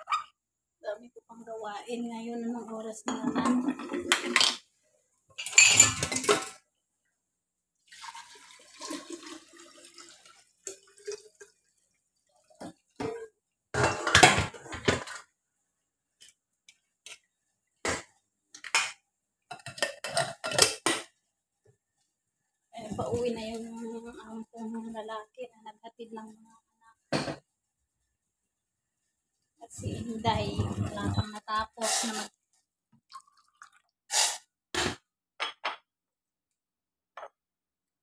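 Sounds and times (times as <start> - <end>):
steel pots clattering: 3.1 - 4.6, 5.4 - 6.6, 12.7 - 15.3, 19.5 - 21.1.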